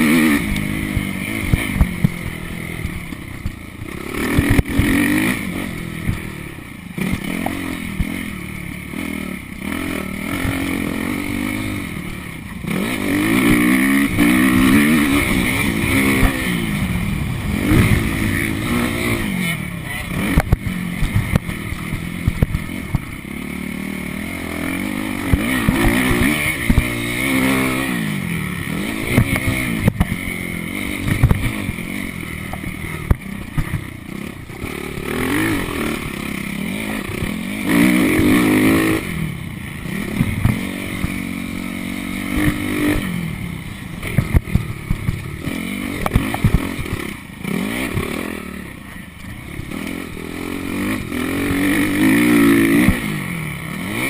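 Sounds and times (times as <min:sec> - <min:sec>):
motocross engine revving: 0:00.0 - 0:54.0
bike knocks and rattles: 0:20.2 - 0:23.2, 0:32.5 - 0:34.0, 0:40.1 - 0:41.2, 0:44.0 - 0:47.1.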